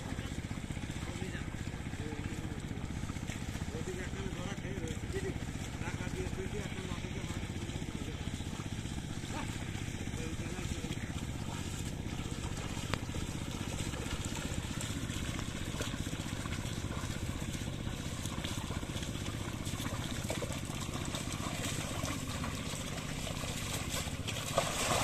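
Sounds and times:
hooves sloshing through mud: 0.0s - 25.0s
wooden plank sloshing through mud: 2.6s - 3.7s, 7.4s - 25.0s.

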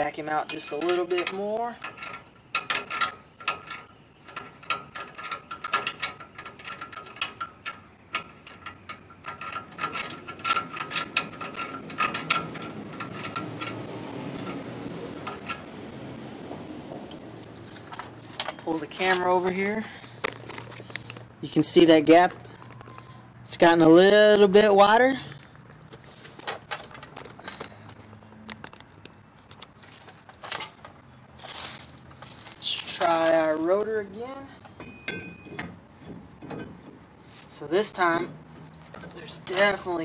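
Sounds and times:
brake adjuster wheel clicking: 0.5s - 15.8s
handling rustle: 17.0s - 21.4s, 25.3s - 37.6s.

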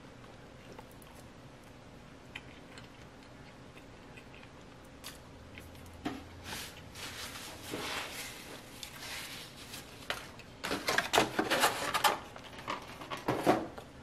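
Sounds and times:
chewing food: 0.2s - 6.0s.

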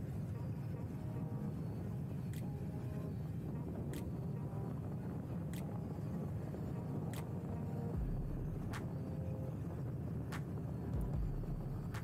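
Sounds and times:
wind and road rumble: 0.0s - 12.0s.

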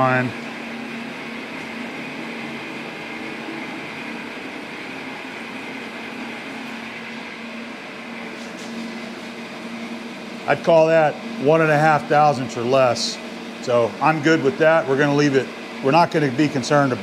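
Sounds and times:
ventilation drone: 0.0s - 17.0s.

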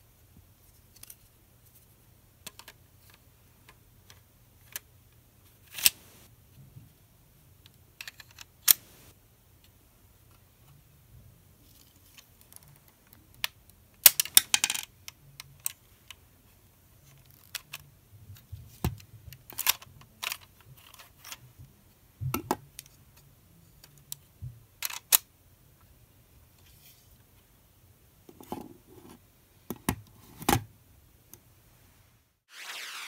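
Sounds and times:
plastic parts clicking: 19.4s - 21.4s, 24.8s - 25.3s.

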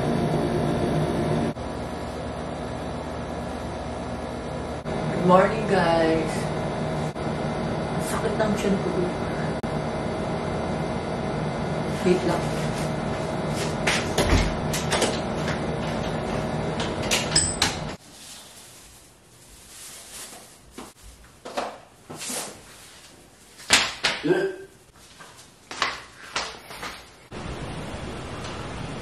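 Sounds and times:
room hum: 0.0s - 29.0s.

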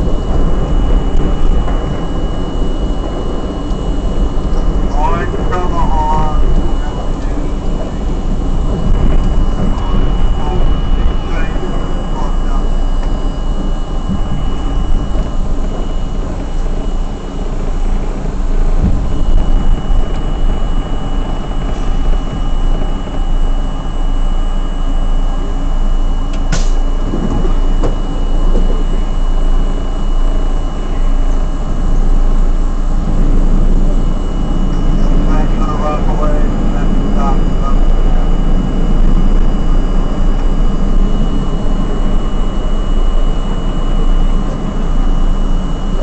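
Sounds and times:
subway car rumbling on track: 0.0s - 46.0s
sharp click: 26.3s - 26.8s.

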